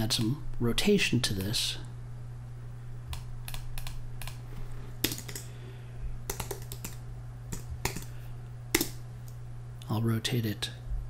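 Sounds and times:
steady low hum: 0.0 - 11.0
keyboard typing clicks: 3.1 - 4.4, 5.0 - 5.5, 6.3 - 8.1, 8.7 - 9.0.

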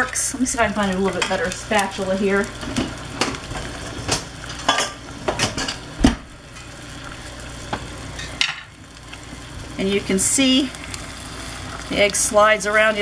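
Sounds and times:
egg sizzling in a skillet: 0.0 - 13.0
kitchen utensils clattering: 2.7 - 6.7.

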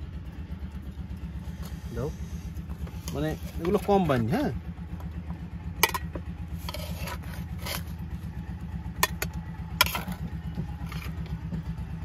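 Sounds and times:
engine running: 0.0 - 12.0
metal spatula scraping pan: 6.6 - 8.0.

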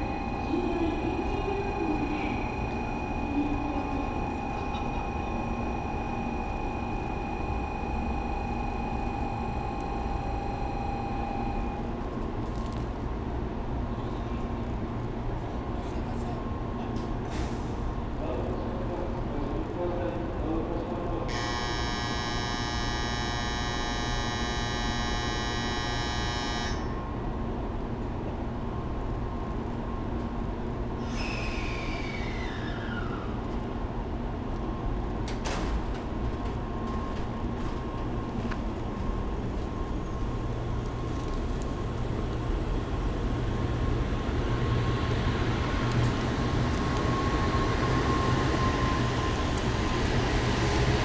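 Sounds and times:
buzzer-like tone: 0.0 - 11.9, 21.3 - 27.0
falling electric whine: 0.0 - 11.9, 21.3 - 27.0
high drive tone: 0.0 - 11.9, 21.3 - 27.0
rumble of train carriages: 29.8 - 51.0.

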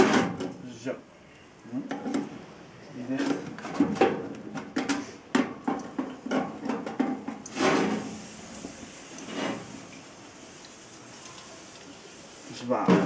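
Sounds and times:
water hissing on smouldering fire: 5.0 - 13.0.

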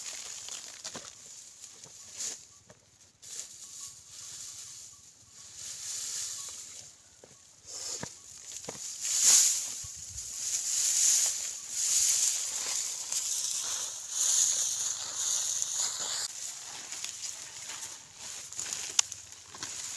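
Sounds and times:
dry straw rustling: 0.0 - 19.9
straw stems snapping: 18.6 - 19.7.

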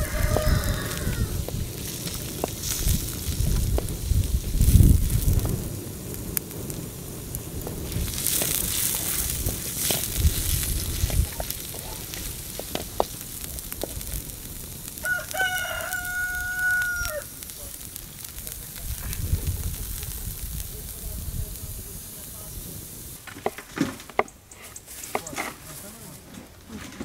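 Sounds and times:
rooster crowing: 0.0 - 1.5, 15.0 - 17.4
chicken sizzling in a wok: 0.0 - 23.6
wooden spatula scraping: 7.9 - 14.0, 23.3 - 27.0.

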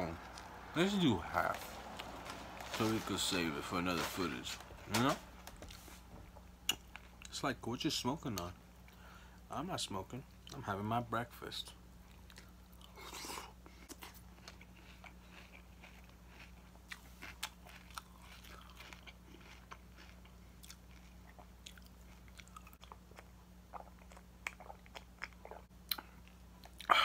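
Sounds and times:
low steady hum: 0.0 - 27.0
person chewing cereal: 12.1 - 26.9.

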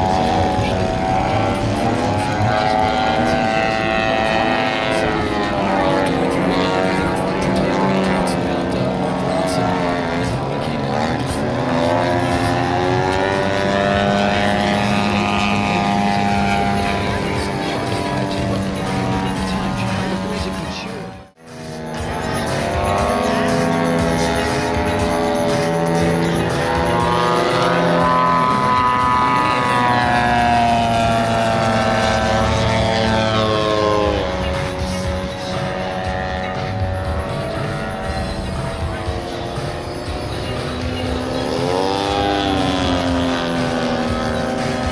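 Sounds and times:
model plane engine running: 0.0 - 44.9.

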